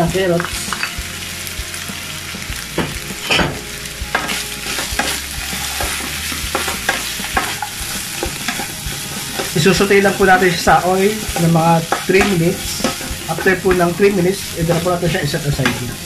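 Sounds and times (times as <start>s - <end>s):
vegetables sizzling in hot oil: 0.0s - 16.0s
wooden spatula scraping a pan: 4.1s - 16.0s.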